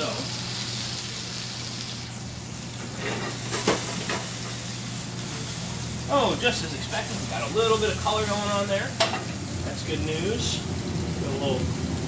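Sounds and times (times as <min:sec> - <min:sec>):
food sizzling in pans: 0:00.0 - 0:12.0
pan clanking on burner grate: 0:02.8 - 0:04.6, 0:08.9 - 0:09.4.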